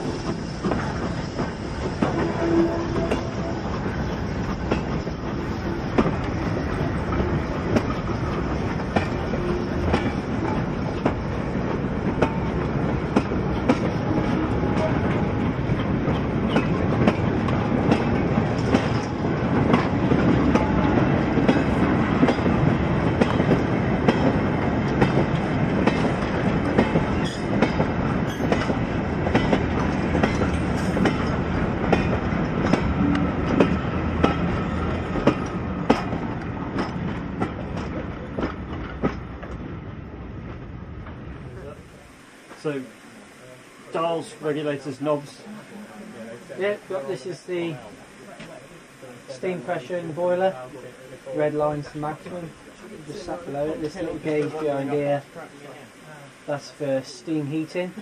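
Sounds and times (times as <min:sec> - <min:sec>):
train wheels clicking over rail joints: 0:00.0 - 0:41.8.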